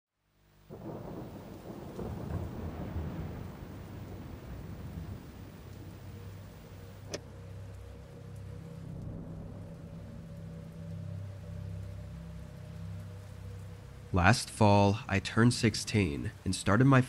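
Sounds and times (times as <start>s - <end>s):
steady rain: 0.1s - 17.0s
low rumble of thunder: 0.7s - 14.1s
low hum: 0.7s - 16.4s.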